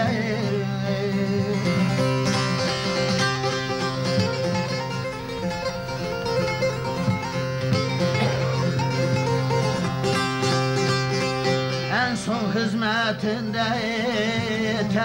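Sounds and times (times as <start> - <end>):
plucked string melody: 0.0 - 15.0
sustained low drone notes: 1.8 - 11.5.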